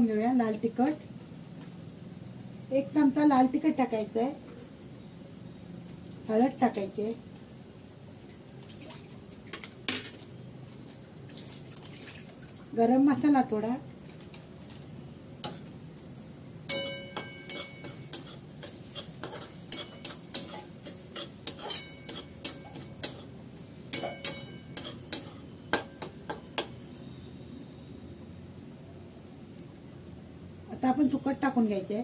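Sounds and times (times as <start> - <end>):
faint sizzle: 0.0 - 32.0
spatula scraping metal pan: 17.2 - 23.3, 24.0 - 26.0.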